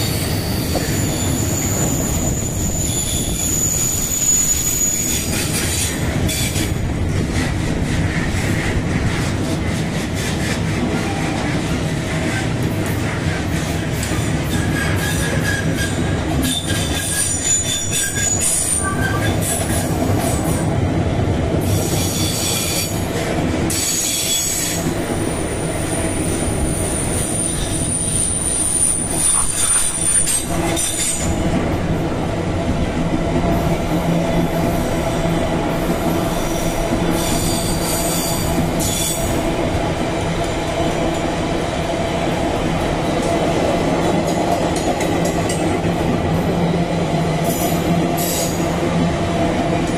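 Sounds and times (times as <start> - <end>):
high-pitched wheel squeal: 0.0 - 5.8, 14.5 - 19.8
train wheels rumbling on rails: 0.0 - 49.9.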